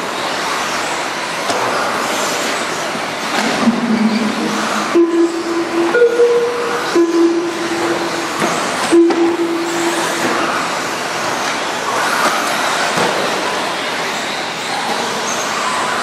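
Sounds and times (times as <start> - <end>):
steady low tone: 3.4 - 10.6.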